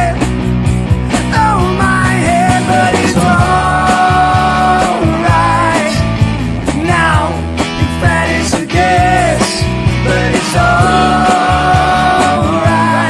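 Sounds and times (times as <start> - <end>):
electric guitars: 0.0 - 13.0
man singing lead vocals: 1.4 - 6.1, 6.7 - 13.0
drum kit beat: 2.2 - 6.0.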